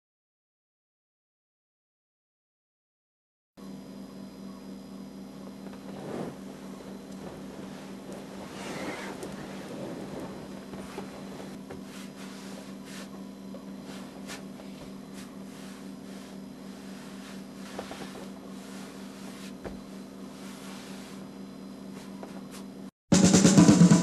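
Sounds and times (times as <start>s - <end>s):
low hum: 4.3s - 22.3s
faint rustles: 7.1s - 13.1s.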